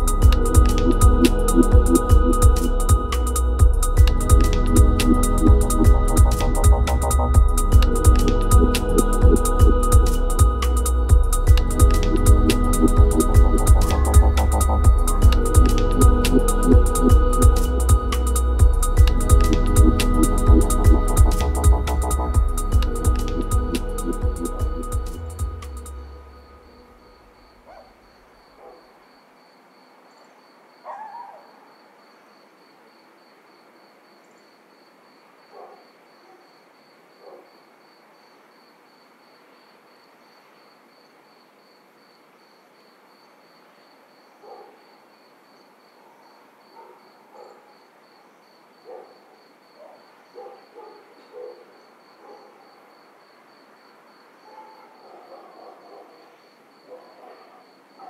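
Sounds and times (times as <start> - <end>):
insects chirping: 0.0 - 58.0.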